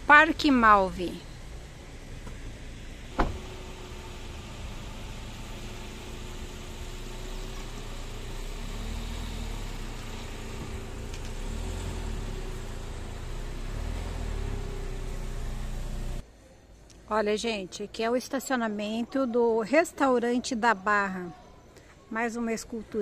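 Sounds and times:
vehicle engine and road rumble: 0.0s - 17.7s.

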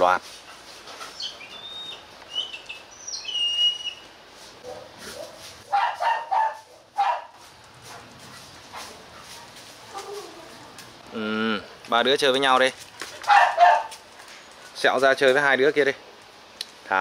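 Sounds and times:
small birds chirping: 0.7s - 4.2s
dog barking: 4.6s - 8.0s, 13.3s - 14.0s.

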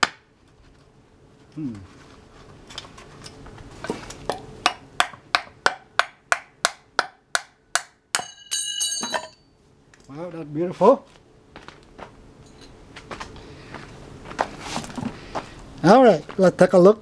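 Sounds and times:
metal ringing clatter: 8.2s - 9.5s.

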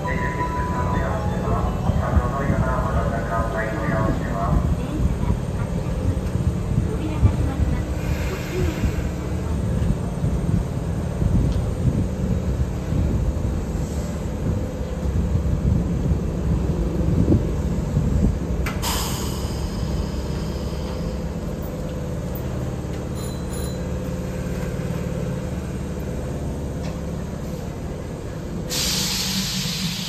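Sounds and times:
electric train humming: 0.0s - 30.0s
train pulling away: 0.0s - 30.0s
train doors closing click: 18.5s - 23.9s
loud hiss: 28.7s - 30.0s.

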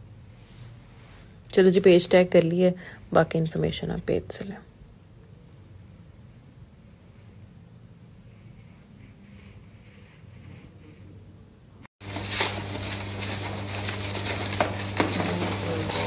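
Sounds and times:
clicks of packages being handled: 12.1s - 16.0s.

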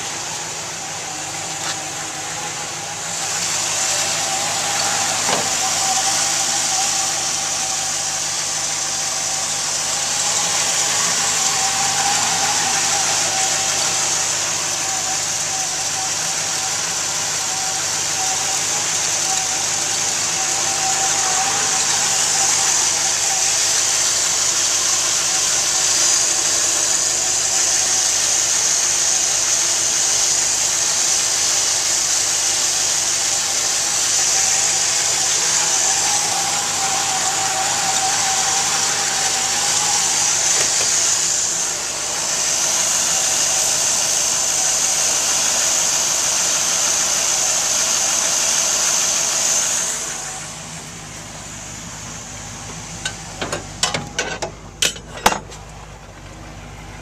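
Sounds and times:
car engine idling: 0.0s - 57.0s
constant hiss: 0.0s - 57.0s.

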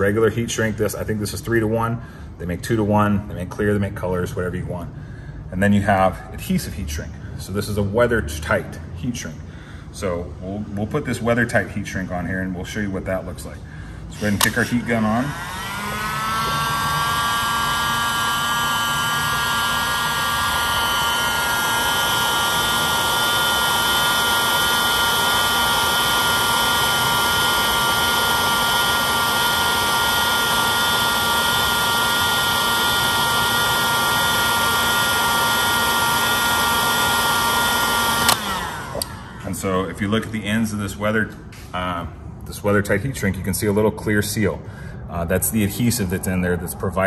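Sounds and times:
heat gun motor whine: 14.1s - 40.0s.

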